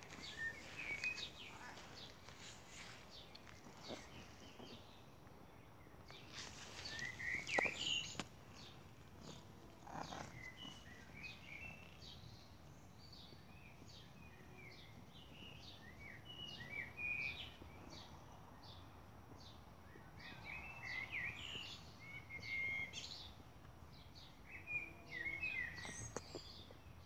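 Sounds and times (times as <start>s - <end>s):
rustling and scraping: 0.0s - 5.0s, 6.1s - 11.3s
small birds chirping: 0.0s - 27.0s.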